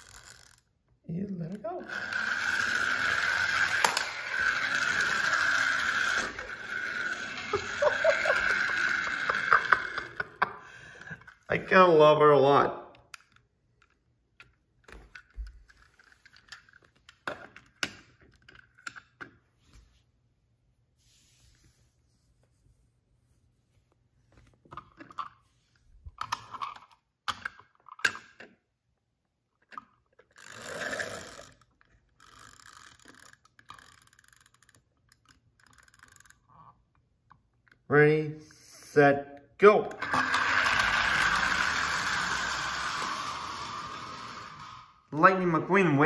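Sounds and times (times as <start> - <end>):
toy cars tapping on wooden floor: 2.5 - 11.3, 13.1 - 19.4, 29.6 - 36.7.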